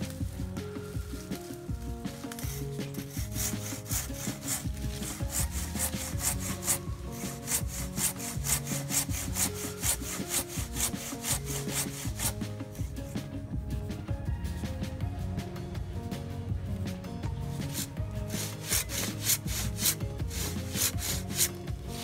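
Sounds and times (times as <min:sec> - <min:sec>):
hand saw cutting branch: 0:01.2 - 0:12.9, 0:17.6 - 0:22.0.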